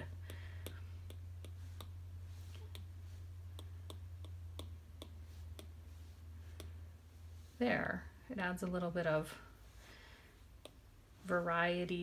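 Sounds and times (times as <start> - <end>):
steady low hum: 0.0 - 12.0
stylus tapping on glass screen: 2.6 - 5.9.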